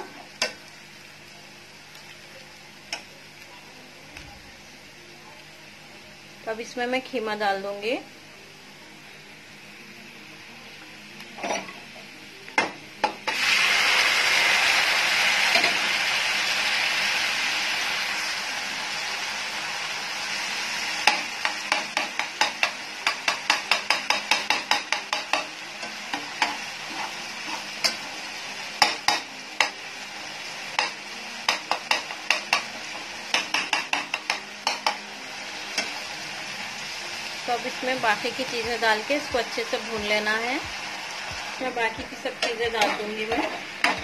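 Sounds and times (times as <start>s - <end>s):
meat sizzling in hot oil: 11.4s - 44.0s
spatula scraping frying pan: 26.2s - 28.0s.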